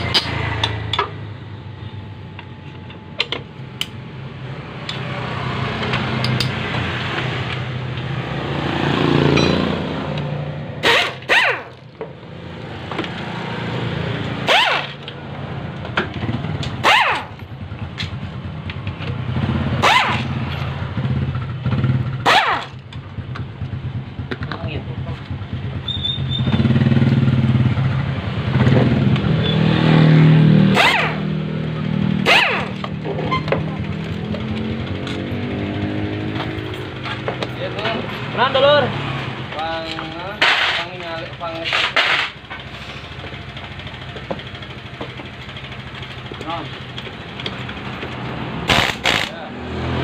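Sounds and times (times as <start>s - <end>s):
pneumatic impact wrench bursts: 10.8s - 11.8s, 14.4s - 15.0s, 19.8s - 20.3s, 22.2s - 22.8s, 30.7s - 31.2s, 32.2s - 32.8s, 40.4s - 40.9s, 48.6s - 49.4s.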